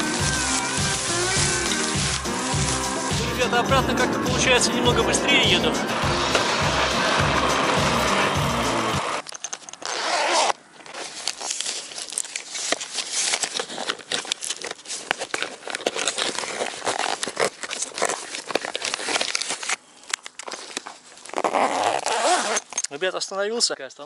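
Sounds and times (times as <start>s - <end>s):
crinkling and crackling handling: 0.0s - 3.2s, 9.0s - 24.0s.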